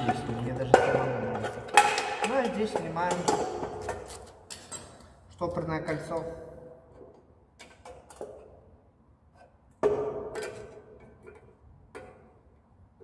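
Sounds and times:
metal parts clicking and knocking: 0.1 - 5.2.

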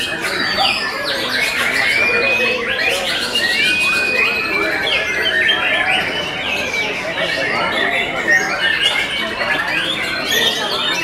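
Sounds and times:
birds singing many at once: 0.0 - 11.0.

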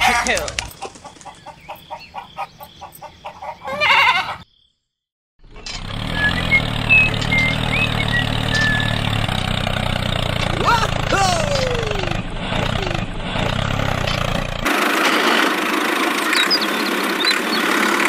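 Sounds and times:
farm animal call: 0.0 - 4.5
tractor engine running: 5.4 - 18.0.

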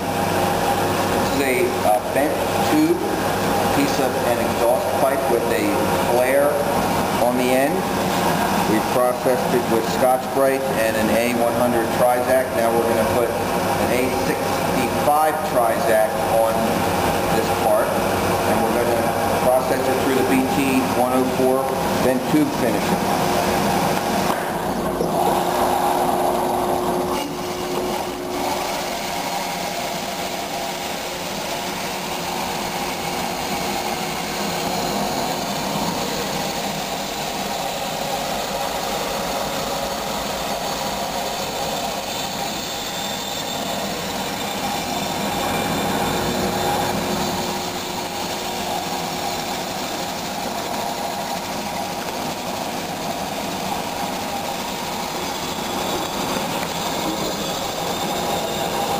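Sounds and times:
belt grinder grinding pipe: 24.8 - 58.9.

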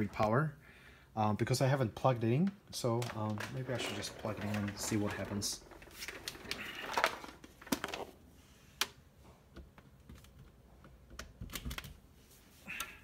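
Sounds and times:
power cord rustling: 2.8 - 8.2.

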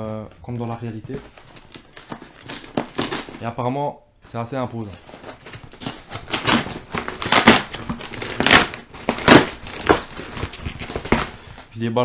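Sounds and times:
packing paper crinkling: 0.0 - 3.5, 4.3 - 11.8
cardboard box ripping: 1.1 - 3.4, 5.0 - 11.7.

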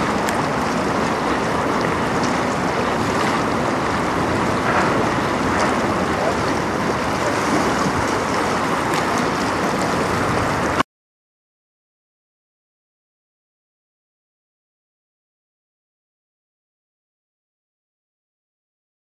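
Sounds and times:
fast-flowing river water: 0.0 - 10.8.

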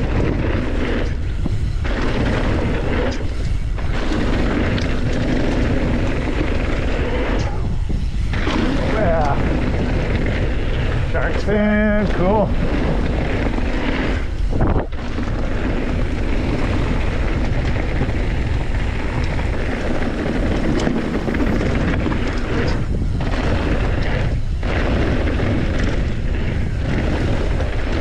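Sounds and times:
bike tyres rolling on dirt: 0.0 - 28.0
wind on microphone: 0.0 - 28.0.

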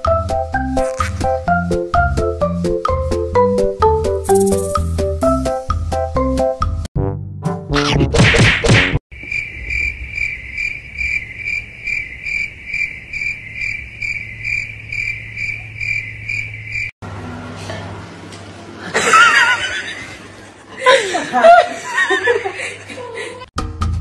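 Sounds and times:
repeated high chirp: 4.3 - 5.0.

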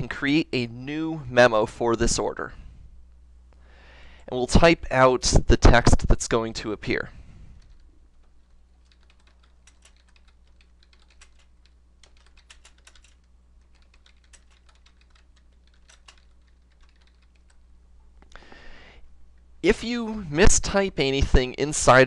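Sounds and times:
low steady hum: 0.0 - 22.0
computer keyboard typing: 7.6 - 17.6.

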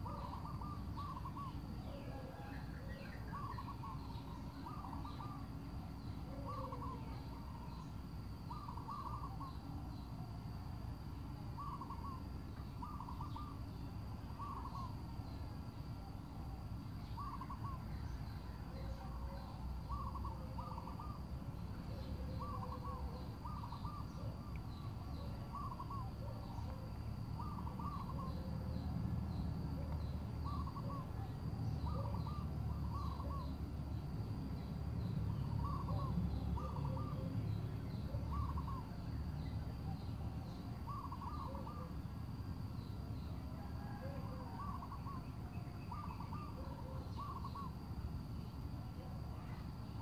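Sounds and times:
bird calling: 0.0 - 5.6, 6.2 - 7.9, 8.5 - 9.8, 11.6 - 13.6, 14.3 - 15.0, 17.1 - 28.9, 29.7 - 33.6, 35.0 - 39.0, 39.8 - 42.0, 43.6 - 47.8.

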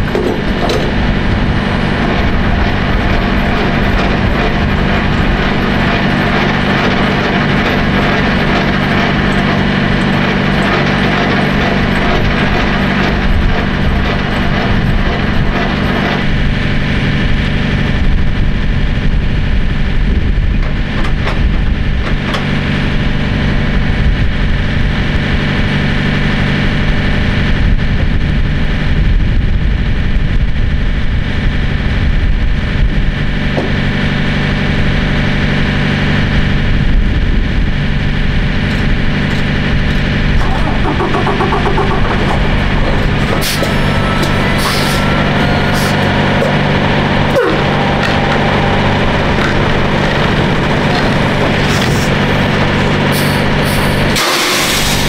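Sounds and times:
diesel truck engine idling: 33.1 - 55.0.

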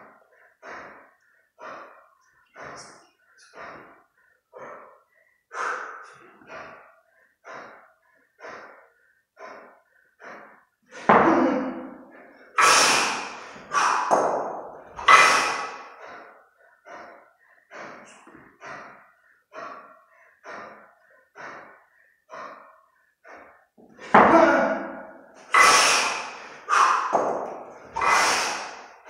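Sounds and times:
forceful exhalations: 0.0 - 29.0
person breathing hard: 0.0 - 29.0.

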